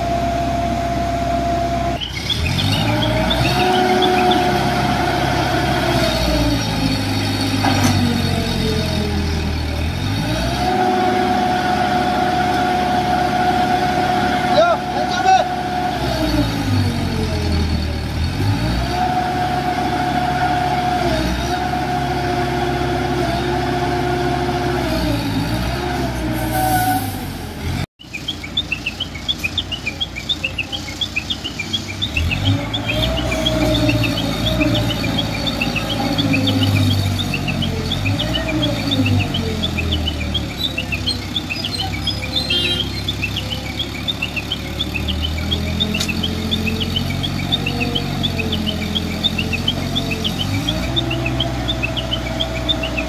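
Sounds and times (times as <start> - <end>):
heavy diesel engines revving: 0.0 - 53.0
rapid high bird chirping: 28.0 - 53.0.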